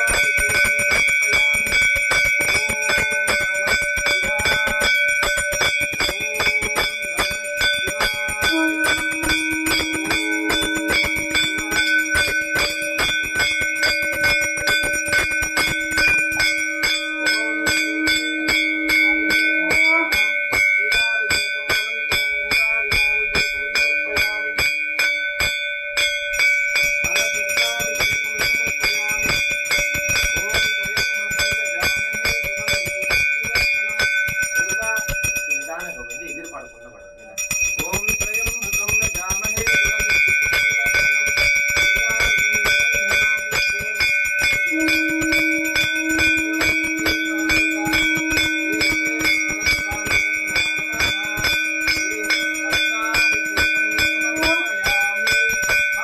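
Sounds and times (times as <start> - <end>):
bell rung rapidly: 0.0 - 56.0
low steady tone: 44.7 - 56.0.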